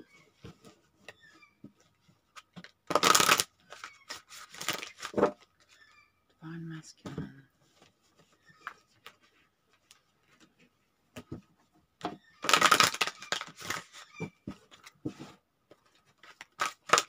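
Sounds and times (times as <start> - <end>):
cards shuffling: 2.3 - 5.8, 12.4 - 15.0, 15.8 - 17.0
cards riffling: 2.4 - 5.3, 12.4 - 14.0, 16.2 - 17.0
cards tapping and clicking: 2.5 - 5.4, 12.4 - 14.0, 15.7 - 17.0.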